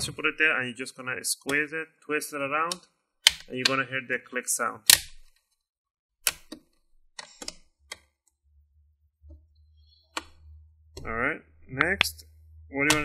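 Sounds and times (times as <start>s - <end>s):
plastic clips snapping: 2.7s - 3.8s, 4.9s - 5.4s.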